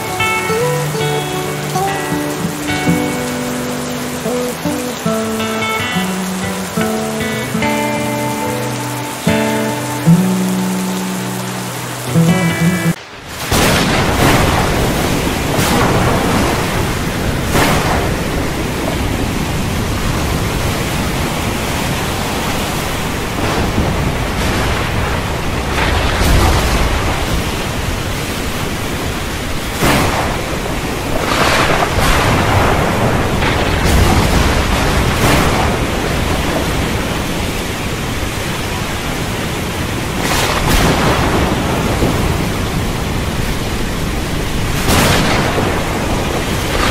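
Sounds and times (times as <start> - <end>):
heavy rain falling: 0.0 - 46.9
thunder cracks: 13.3 - 21.6, 23.1 - 28.1, 29.6 - 38.0, 40.0 - 46.9
low thunder rumble: 13.5 - 21.6, 29.7 - 37.5.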